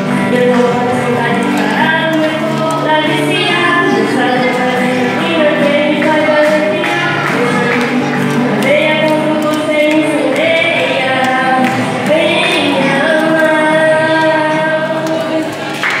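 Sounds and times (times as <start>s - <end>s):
girl singing into a microphone: 0.0s - 15.8s
acoustic guitars: 0.0s - 16.0s.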